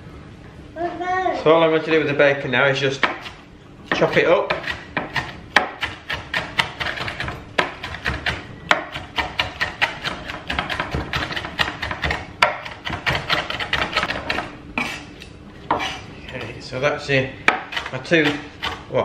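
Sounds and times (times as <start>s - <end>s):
knife chopping on wooden board: 3.0s - 15.1s, 15.7s - 16.6s, 17.4s - 18.9s.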